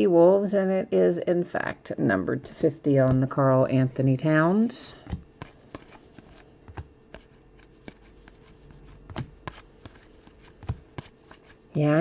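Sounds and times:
trading cards flipped by hand: 5.1s - 11.6s.

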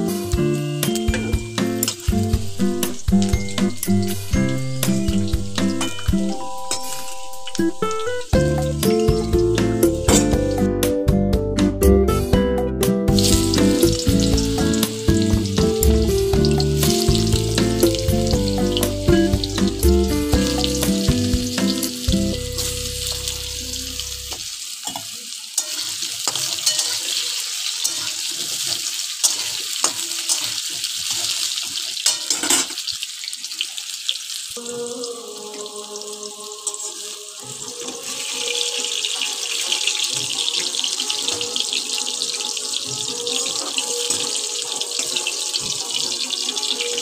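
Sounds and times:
background music: 0.0s - 24.4s, 34.6s - 47.0s
pumpkin frying in hot oil: 0.8s - 10.6s, 13.1s - 47.0s.

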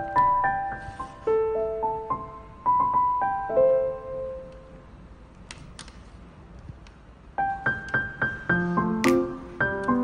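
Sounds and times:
soft piano music: 0.0s - 5.3s, 7.3s - 10.0s.

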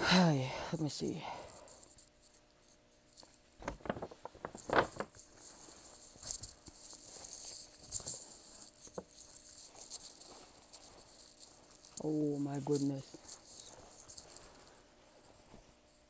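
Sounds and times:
fabric rustling and crinkling: 3.3s - 16.0s.

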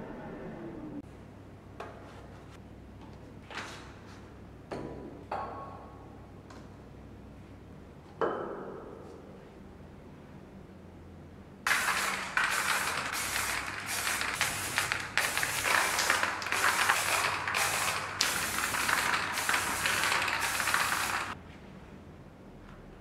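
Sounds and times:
spray paint can hissing: 11.7s - 21.4s.

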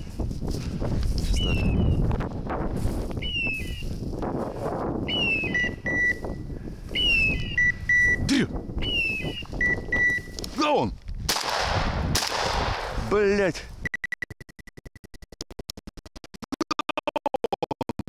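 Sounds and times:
footsteps through marsh grass: 0.0s - 8.2s
beeper collar chirps and beeps: 3.2s - 3.9s, 5.1s - 6.4s, 7.0s - 10.4s, 13.8s - 18.0s
shotgun shot: 11.3s - 13.0s.

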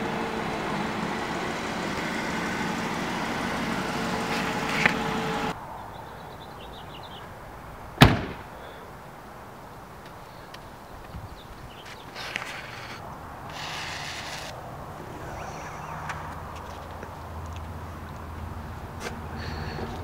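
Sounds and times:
car engine humming: 0.0s - 5.6s, 12.4s - 19.4s.

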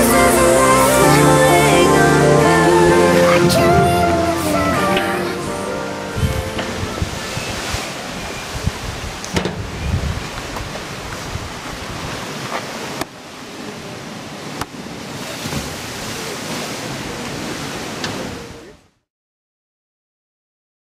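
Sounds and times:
sea surf breaking: 0.0s - 18.8s
wind buffeting microphone: 6.1s - 12.5s.

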